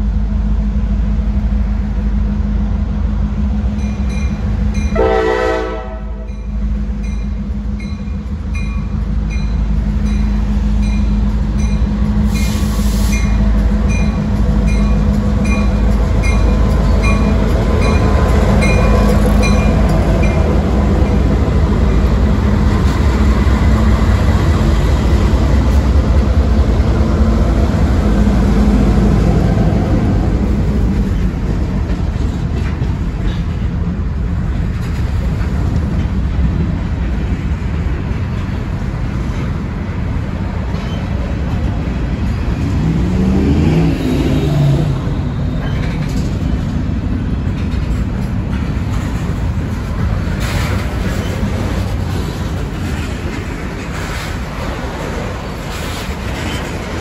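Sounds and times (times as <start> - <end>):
train rumbling past: 0.0 - 57.0.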